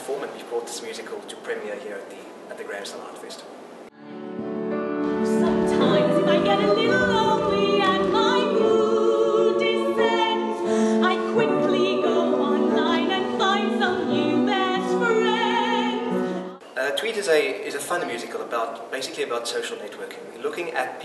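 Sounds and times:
cast singing in harmony: 4.4 - 16.6.

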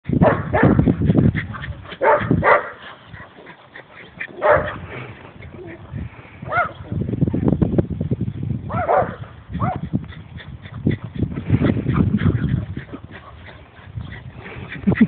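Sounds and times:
dog barking: 0.2 - 0.8, 1.9 - 2.8, 4.3 - 4.8, 6.5 - 6.8, 8.7 - 9.9.

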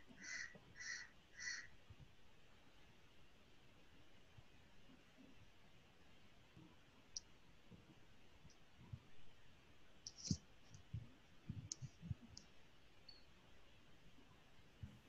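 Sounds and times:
computer mouse clicking: 10.1 - 10.9.

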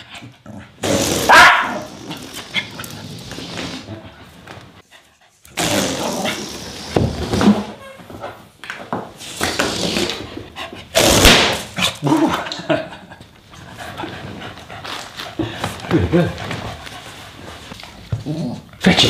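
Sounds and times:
dog barking: 1.3 - 1.9.

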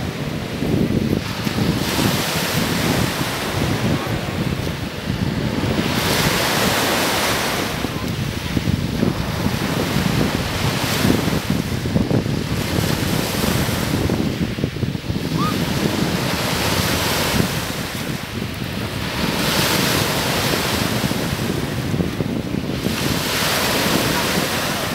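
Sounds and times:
lake waves washing on shore: 0.0 - 24.9
wind buffeting microphone: 0.0 - 24.9.

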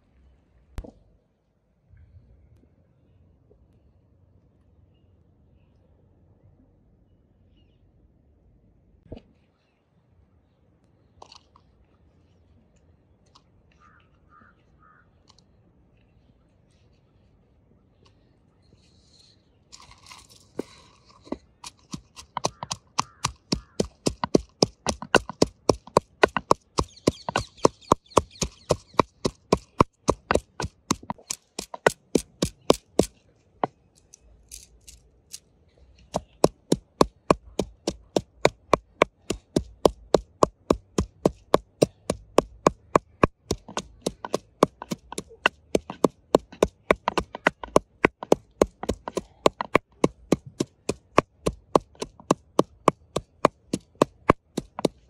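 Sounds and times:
wooden pestle pounding in mortar: 21.6 - 33.1, 36.1 - 55.0.

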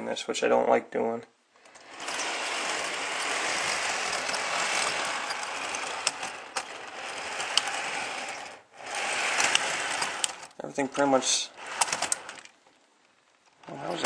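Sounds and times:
model train motor whirr: 1.6 - 12.5
wheels clicking over rail joints: 1.6 - 14.0.

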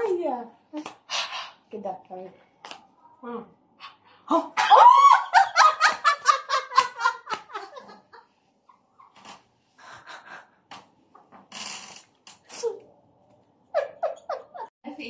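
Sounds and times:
women laughing: 4.6 - 8.3, 13.7 - 14.7.

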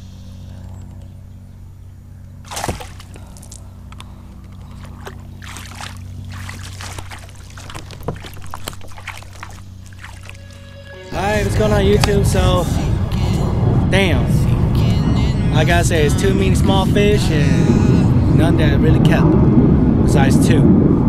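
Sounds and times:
steady low hum: 0.0 - 21.0
water splashing along kayak: 2.4 - 10.7.

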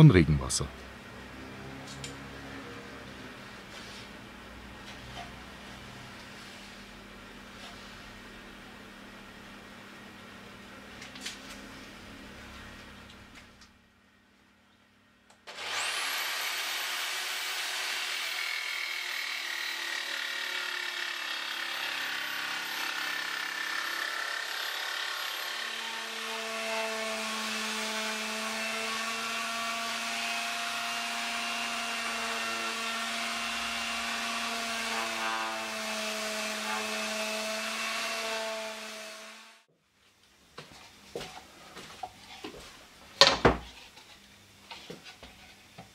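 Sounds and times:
power tool whining: 15.5 - 39.6.

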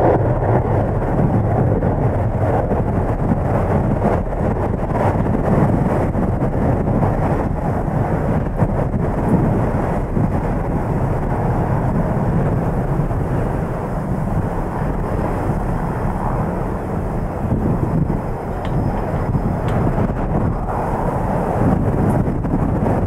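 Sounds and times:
turboprop engines running: 0.0 - 23.0
wind buffeting microphone: 0.0 - 23.0.

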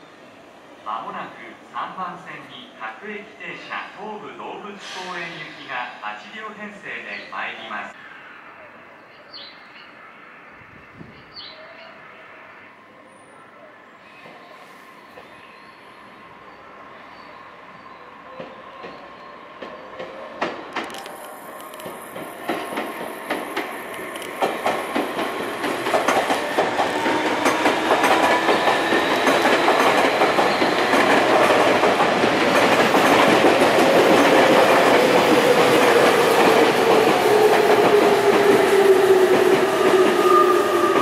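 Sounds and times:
electric train running past: 0.0 - 41.0
wheels clacking over rail joints: 19.6 - 40.0.

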